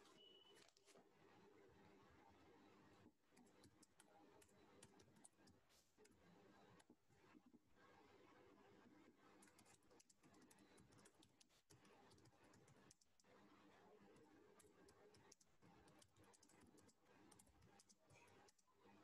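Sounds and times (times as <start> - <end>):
keyboard typing: 3.3 - 6.2, 9.3 - 13.3, 14.0 - 18.7.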